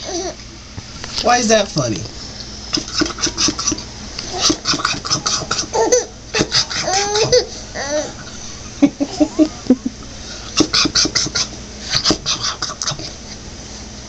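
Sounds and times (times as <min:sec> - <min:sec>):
baby laughing: 0:02.9 - 0:08.2.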